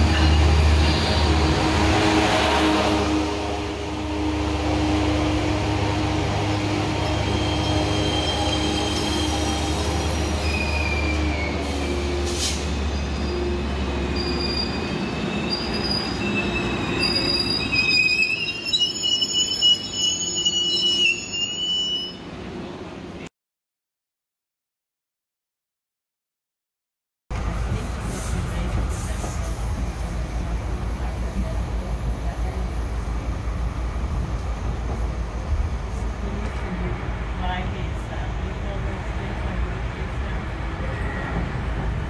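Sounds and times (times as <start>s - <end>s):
train coaches rumbling past: 0.0s - 23.2s, 27.3s - 42.0s
train brakes squealing: 7.1s - 22.3s, 40.8s - 41.7s.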